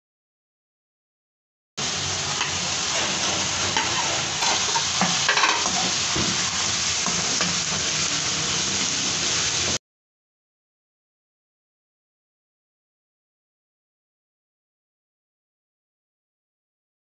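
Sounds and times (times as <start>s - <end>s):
food sizzling in hot oil: 1.8s - 9.8s
metal spatula scraping pan: 2.4s - 7.9s.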